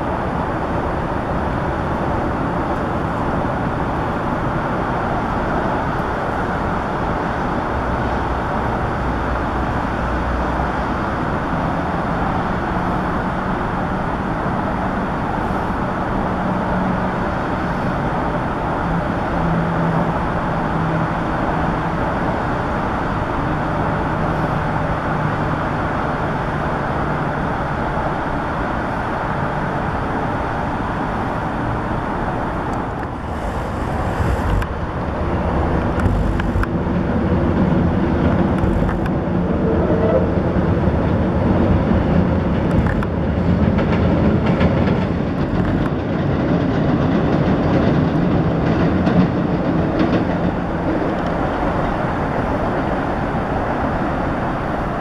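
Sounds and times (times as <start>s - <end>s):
distant traffic rumble: 0.0s - 55.0s
faint low engine hum: 0.0s - 55.0s.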